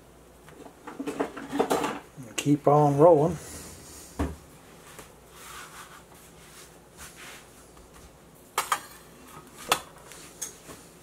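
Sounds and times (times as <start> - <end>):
hard object knocking on counter: 4.2 - 4.4
dough rubbing on countertop: 4.6 - 8.2.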